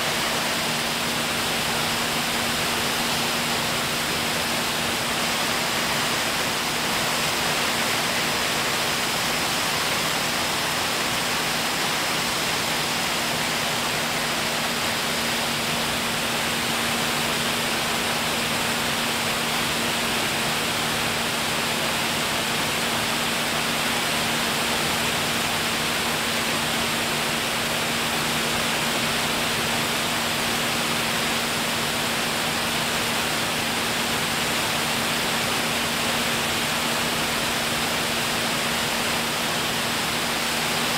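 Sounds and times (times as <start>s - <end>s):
aircraft engine hum: 0.0s - 40.9s.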